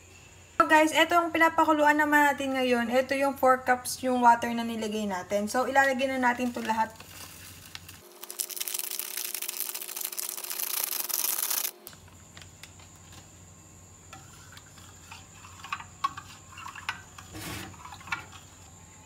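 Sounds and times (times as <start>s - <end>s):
powder pouring into water: 7.0s - 11.8s.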